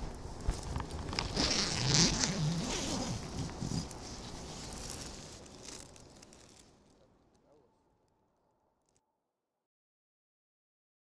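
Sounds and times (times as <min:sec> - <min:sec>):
nylon fabric rustling: 0:01.1 - 0:06.9
zip being pulled: 0:01.2 - 0:03.9.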